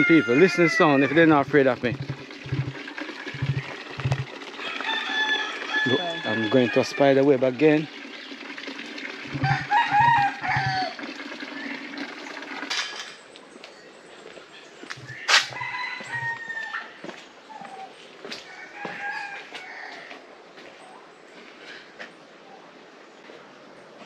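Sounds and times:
rooster crowing: 0.0 - 1.6, 4.6 - 7.0, 9.3 - 11.0, 15.1 - 17.0, 18.5 - 20.2
low thuds: 1.4 - 2.8, 3.4 - 4.3.

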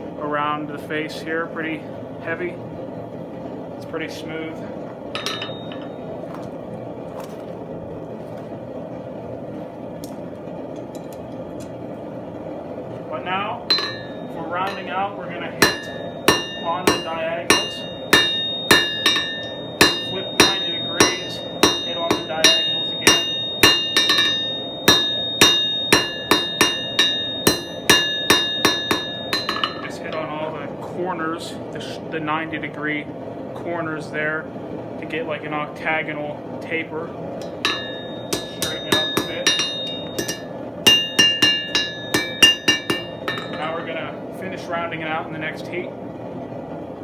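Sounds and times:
gas forge burner rushing: 0.0 - 47.0
anvil ringing: 5.2 - 6.0, 13.7 - 30.4, 37.4 - 44.0
hammer striking steel on anvil: 5.2 - 6.0, 13.7 - 30.4, 37.4 - 44.0.

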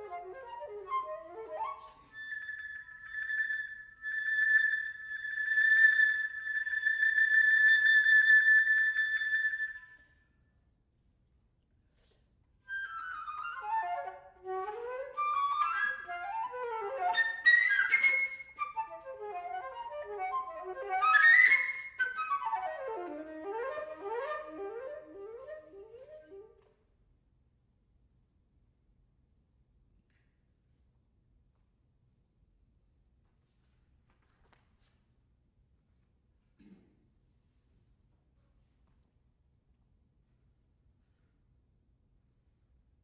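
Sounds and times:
solo flute playing: 0.0 - 10.1, 12.7 - 26.7.

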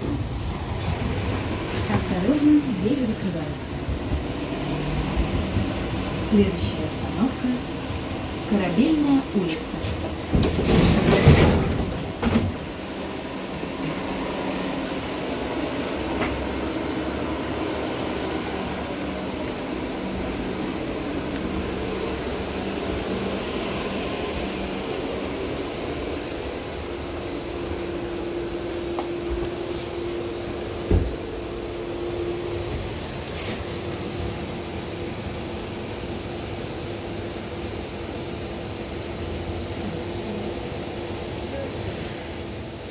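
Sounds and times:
tram running gear hum: 0.0 - 42.9
steady whine: 11.8 - 42.9.

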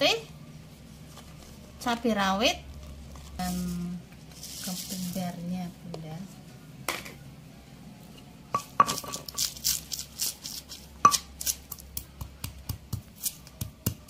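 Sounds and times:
stone pestle pounding in mortar: 11.1 - 14.0.

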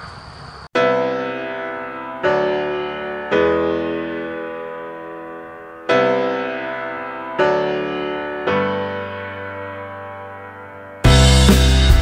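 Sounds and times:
slow piano chords: 0.8 - 12.0.

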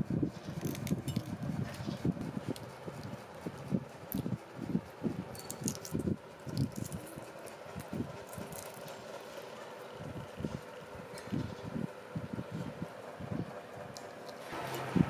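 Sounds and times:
eggshell crackling: 0.4 - 4.6, 5.2 - 9.6.

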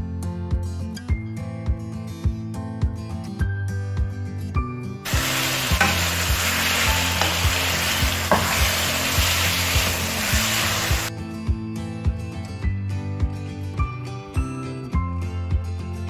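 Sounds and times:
fish sizzling in frying pan: 5.1 - 11.1
background music with beat: 5.1 - 15.9.

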